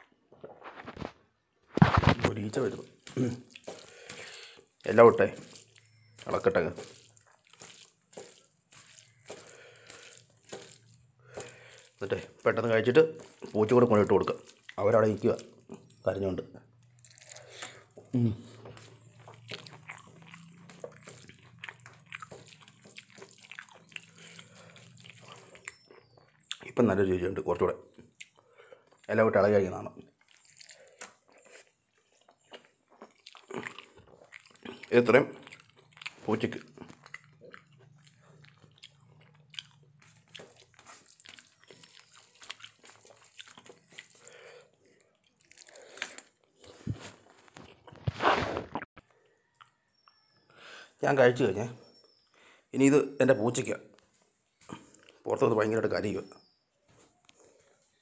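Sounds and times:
fingers squishing rice on plate: 0:01.8 - 0:16.0, 0:17.0 - 0:26.4
close chewing: 0:01.8 - 0:48.1.

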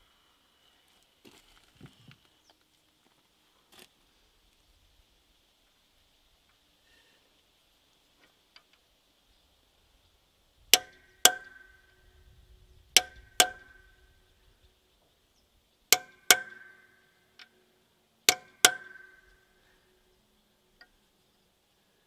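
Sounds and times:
hammer striking metal punch: 0:10.8 - 0:12.0, 0:13.0 - 0:14.1, 0:15.9 - 0:17.5, 0:18.3 - 0:19.6.

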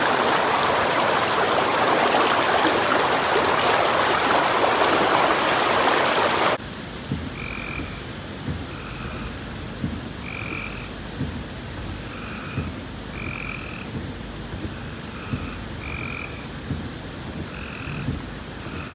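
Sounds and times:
floodwater rushing: 0:00.0 - 0:18.9
heavy rain hiss: 0:00.0 - 0:18.9
raindrops tapping: 0:00.0 - 0:18.9
frogs calling: 0:07.4 - 0:08.0, 0:10.2 - 0:11.0, 0:12.0 - 0:13.9, 0:14.7 - 0:16.6, 0:17.5 - 0:18.9.

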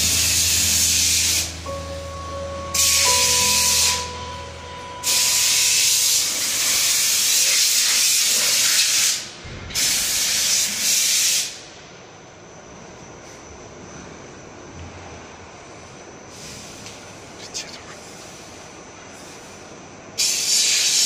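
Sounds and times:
high-pressure jet hissing: 0:00.0 - 0:01.8.

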